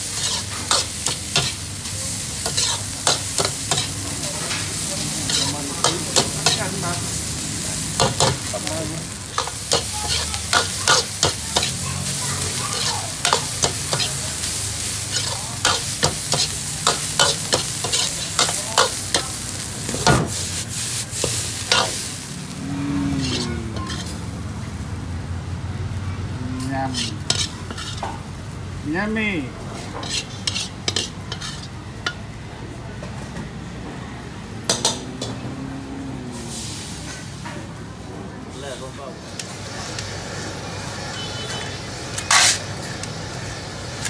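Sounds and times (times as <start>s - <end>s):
food sizzling in hot oil: 0.0s - 32.3s, 34.6s - 37.5s, 38.6s - 44.0s
metal utensil scraping a pan: 0.2s - 1.6s, 2.4s - 4.0s, 23.1s - 24.3s, 26.6s - 28.2s, 29.8s - 31.8s, 42.2s - 42.6s.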